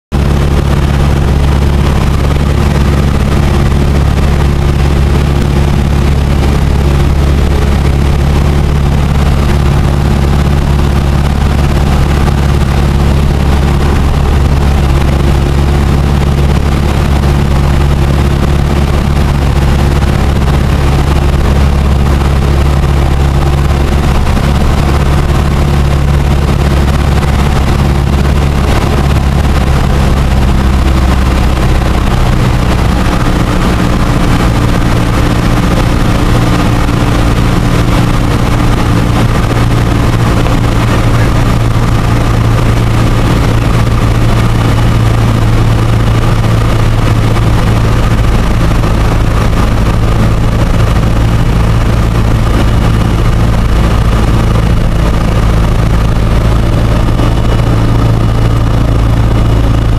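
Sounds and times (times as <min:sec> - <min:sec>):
propeller plane engine droning: 0:00.0 - 0:59.9
rush of air noise: 0:00.1 - 0:59.9.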